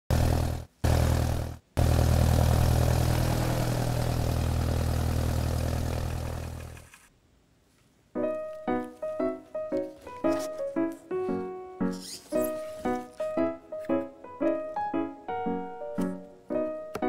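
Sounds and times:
propeller plane engine drone: 0:00.1 - 0:07.1.

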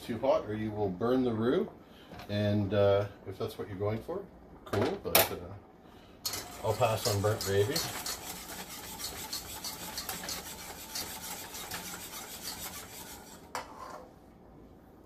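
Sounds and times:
whisk scraping a saucepan: 0:06.3 - 0:14.1.

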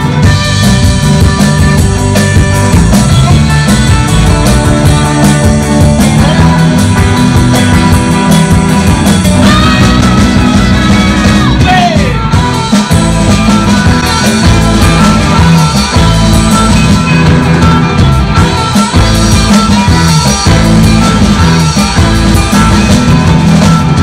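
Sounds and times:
guitar note sliding down: 0:00.0 - 0:24.0
surf rock band playing: 0:00.0 - 0:24.0.

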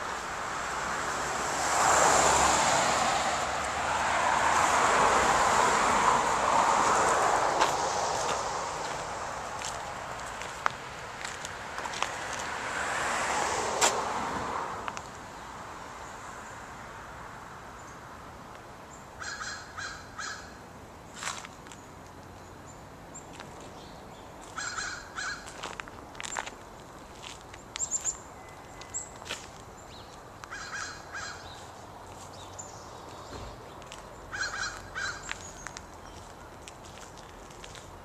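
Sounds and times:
rushing noise: 0:00.0 - 0:10.3
crows cawing: 0:19.2 - 0:20.6, 0:24.6 - 0:25.6, 0:30.5 - 0:31.5, 0:34.3 - 0:35.3.

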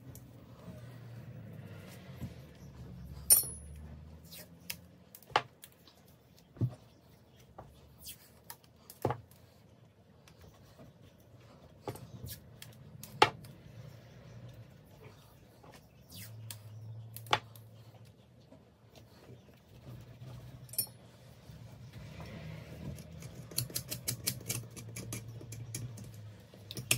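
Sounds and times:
metal parts clinking on workbench: 0:03.3 - 0:03.8, 0:20.7 - 0:21.0.

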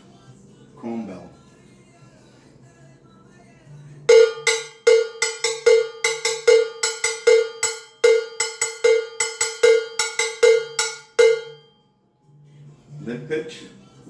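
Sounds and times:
metal bell struck with a stick: 0:04.1 - 0:11.8.

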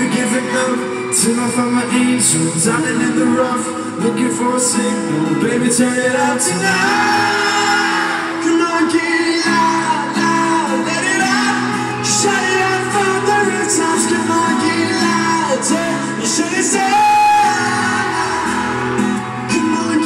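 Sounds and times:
live pop-rock band playing: 0:00.0 - 0:20.0
man singing into microphone: 0:00.0 - 0:20.0
crowd shouting: 0:06.0 - 0:20.0.

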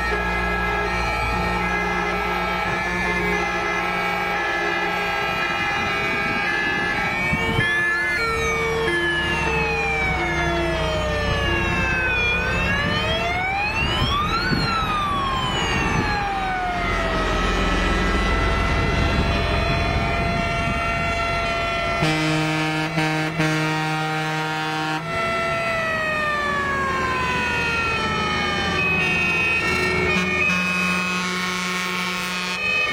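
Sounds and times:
truck engines rumbling: 0:00.0 - 0:32.9
two-tone siren: 0:00.0 - 0:32.9
wailing fire truck siren: 0:00.0 - 0:32.9.

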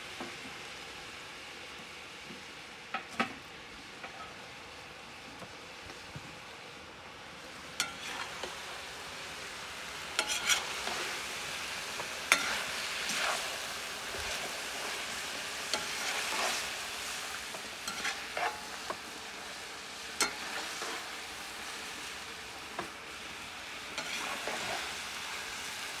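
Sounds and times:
food sizzling in oil: 0:07.1 - 0:26.0.

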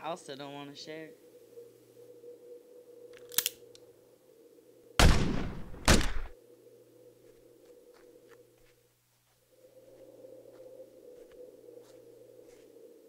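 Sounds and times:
gunshots: 0:05.0 - 0:06.4.

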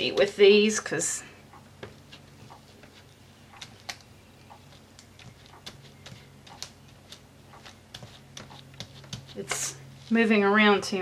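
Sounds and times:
low steady hum: 0:00.0 - 0:11.0
plastic stencils clicking and tapping: 0:03.5 - 0:09.7.

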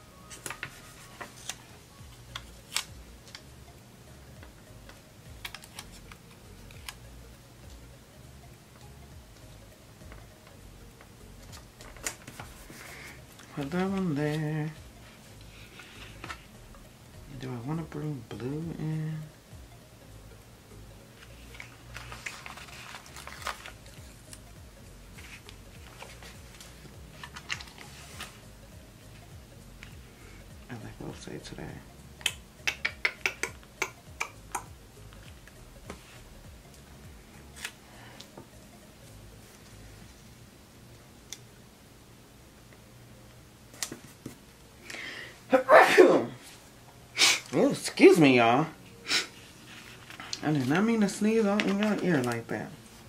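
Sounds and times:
paper rustling: 0:00.3 - 0:01.7, 0:11.8 - 0:14.4, 0:21.2 - 0:24.0, 0:25.2 - 0:28.4, 0:49.4 - 0:52.5.

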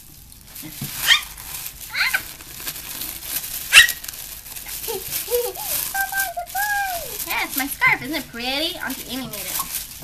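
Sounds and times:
small dog yipping: 0:01.0 - 0:02.2, 0:03.7 - 0:04.0.

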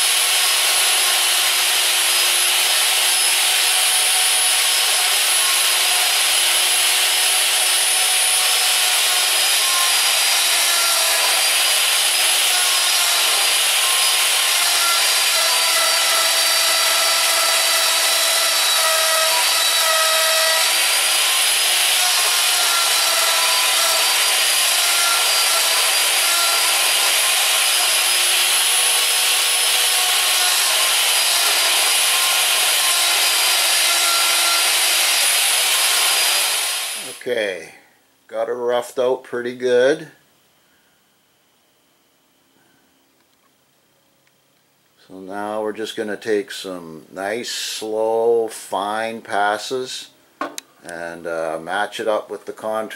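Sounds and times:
router whining cutting wood: 0:00.0 - 0:37.2.

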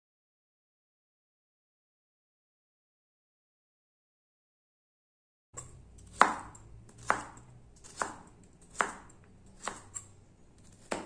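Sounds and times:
knife chopping on plastic board: 0:05.6 - 0:11.0.

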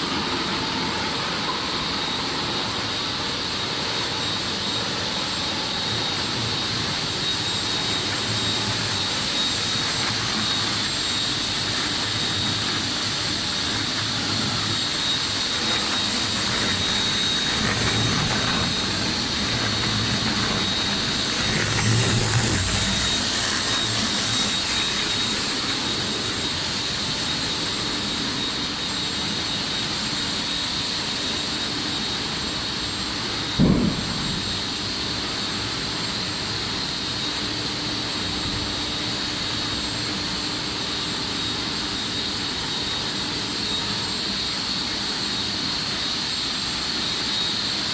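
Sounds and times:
high whine: 0:00.0 - 0:47.9
machine hum and hiss: 0:00.0 - 0:47.9
brief thump: 0:33.6 - 0:34.6.

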